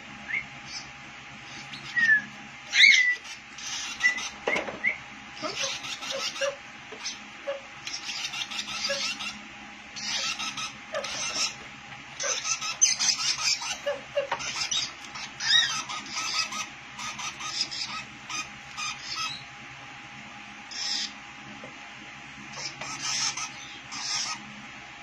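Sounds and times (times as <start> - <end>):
high squeaky bird calls: 1.5 - 4.4, 5.4 - 9.4, 10.0 - 11.6, 12.2 - 19.5, 20.7 - 21.2, 22.5 - 24.4
bird chick chirping: 1.5 - 9.4, 10.0 - 11.6, 12.2 - 19.5, 20.7 - 21.2, 22.5 - 24.5.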